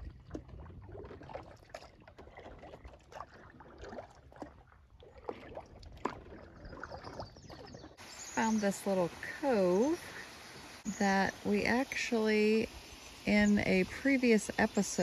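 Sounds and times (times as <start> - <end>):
paddle splashes and drips: 0.0 - 11.0.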